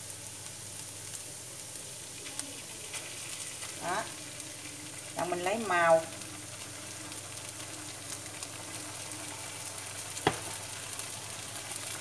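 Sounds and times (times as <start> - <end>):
food sizzling in a pan: 0.0 - 12.0.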